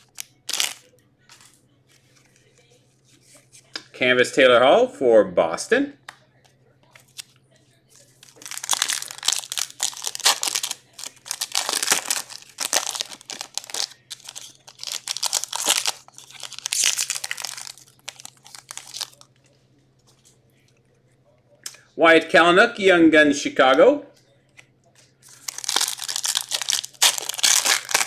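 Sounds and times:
wrappers tearing and crinkling: 0.0s - 0.9s, 8.2s - 19.3s, 25.2s - 28.0s.

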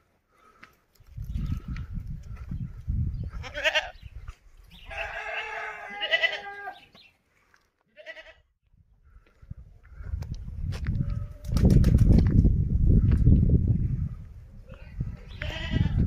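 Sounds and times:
goat bleating: 3.4s - 4.0s, 4.9s - 6.9s, 7.9s - 8.4s, 15.3s - 16.0s.

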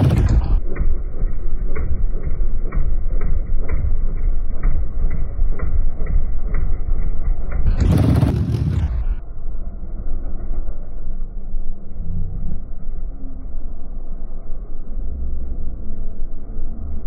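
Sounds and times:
harsh engine blast: 0.0s - 10.5s
quad engine idling: 0.0s - 13.4s
faint engine ticking: 0.0s - 17.0s.

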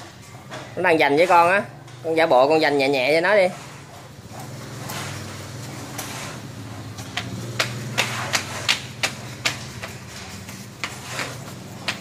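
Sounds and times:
sandals slapping on tile floor: 4.3s - 12.0s.

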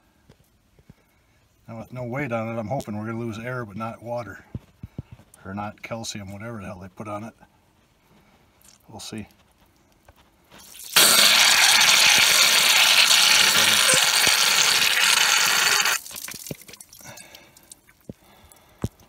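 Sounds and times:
air hissing from tire valve: 11.0s - 16.0s.

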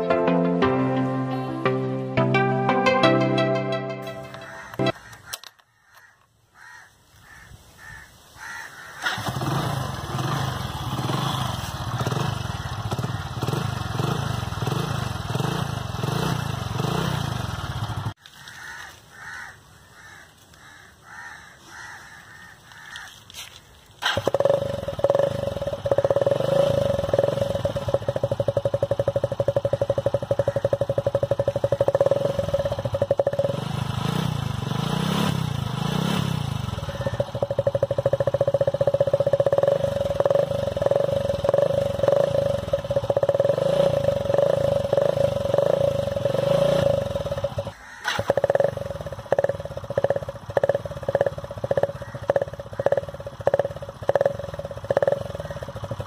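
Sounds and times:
motorcycle engine buzzing: 9.0s - 19.4s, 22.4s - 56.0s.

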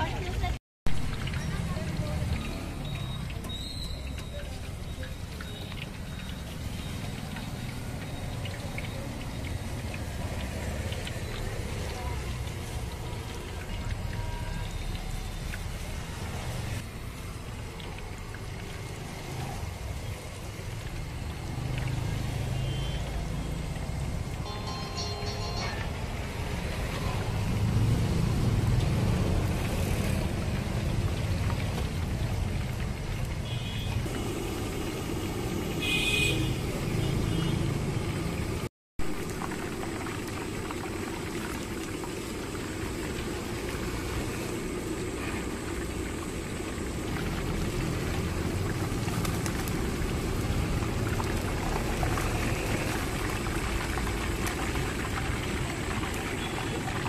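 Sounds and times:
oil bubbling and sizzling: 0.0s - 57.0s.

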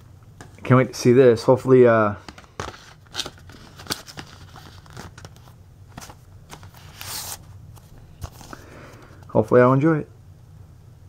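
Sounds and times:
cardboard scraping rustles: 2.4s - 8.6s.

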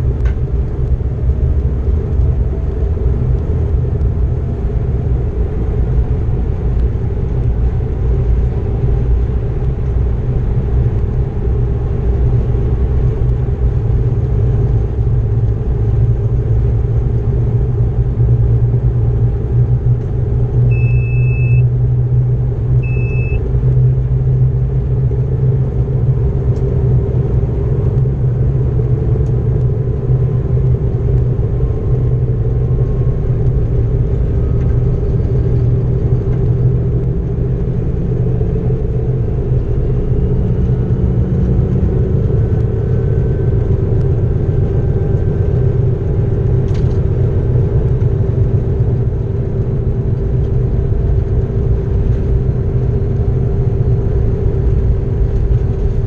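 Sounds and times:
diesel locomotive engine rumble: 0.0s - 56.0s
short high beeps: 20.7s - 21.7s, 22.8s - 23.4s.

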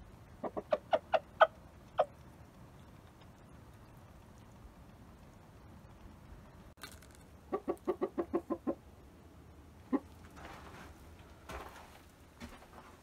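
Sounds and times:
rooster clucking: 0.4s - 2.1s, 7.5s - 8.8s.

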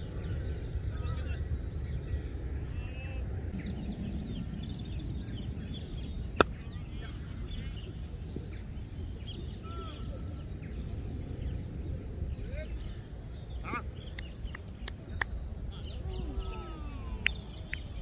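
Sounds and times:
steady low rumble: 0.0s - 18.0s
small birds chirping: 0.1s - 18.0s.

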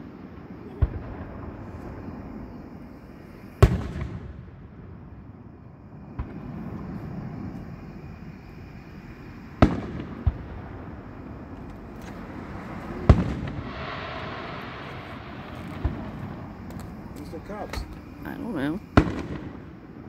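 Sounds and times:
faint fireworks pops: 0.0s - 2.6s, 3.5s - 5.0s, 6.0s - 7.8s, 9.6s - 18.1s, 19.0s - 19.9s
fireworks booming: 0.0s - 20.0s
rushing hissing noise: 11.0s - 18.2s.

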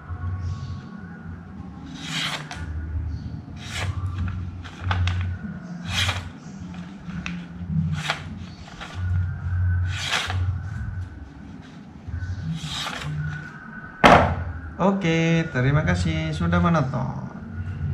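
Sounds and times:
sandpaper rasping on steel blade: 1.9s - 2.6s, 3.6s - 4.0s, 5.8s - 6.3s, 9.9s - 10.4s, 12.6s - 13.2s.

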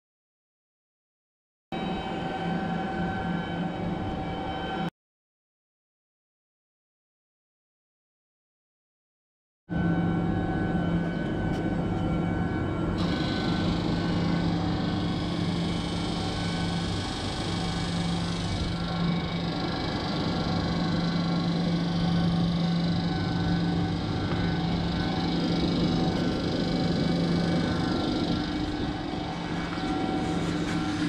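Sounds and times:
chiller humming: 9.8s - 31.0s
compressor and fans hissing: 13.0s - 31.0s.

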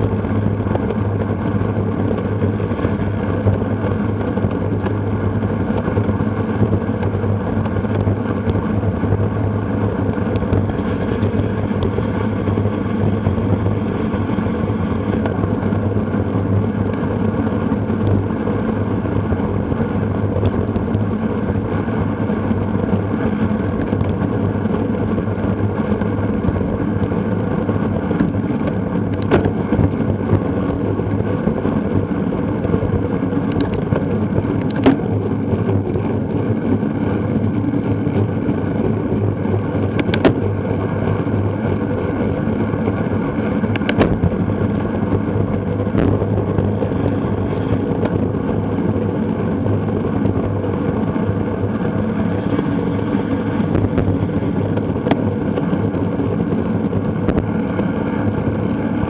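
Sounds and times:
rolling road noise: 0.0s - 59.0s
wind rushing on microphone: 0.0s - 59.0s.

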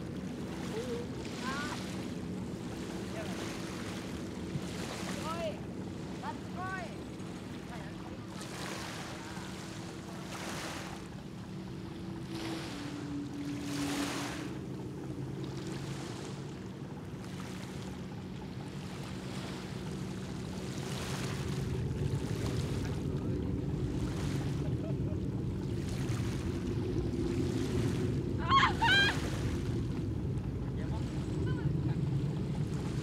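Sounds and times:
distant jet engine hum: 0.0s - 33.0s
small waves lapping: 0.0s - 33.0s.

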